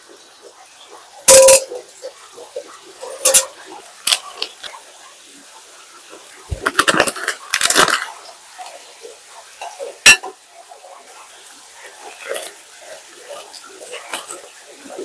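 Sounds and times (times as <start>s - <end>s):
dishes and utensils clattering: 1.2s - 2.2s, 3.0s - 4.4s, 6.5s - 8.1s, 9.6s - 10.4s.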